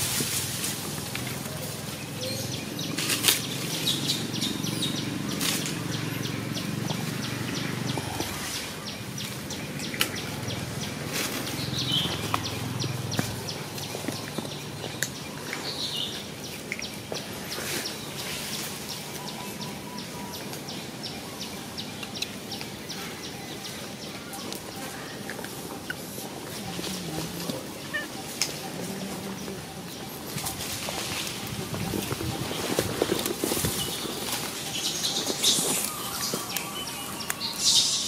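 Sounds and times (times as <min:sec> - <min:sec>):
dry leaves crackling: 0:00.0 - 0:38.0
bird chirps: 0:32.0 - 0:38.0.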